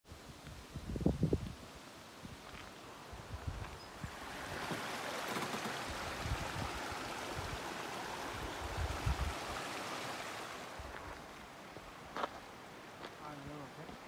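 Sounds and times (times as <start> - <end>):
stream water rushing: 1.8 - 14.0.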